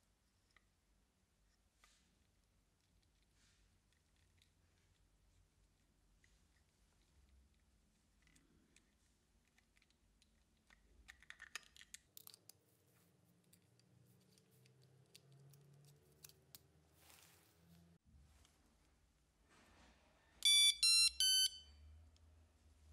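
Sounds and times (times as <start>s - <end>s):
plastic clicks and scrapes: 6.2s - 16.7s.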